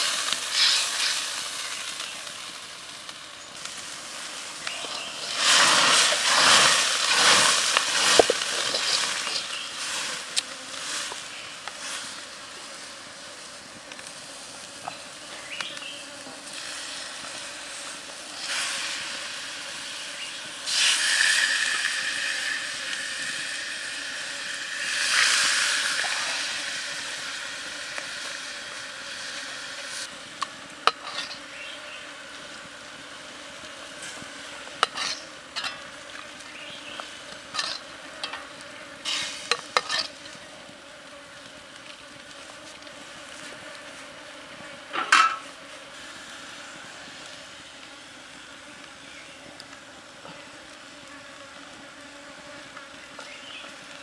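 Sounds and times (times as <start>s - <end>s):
liquid sizzling in a wok: 0.0s - 44.0s.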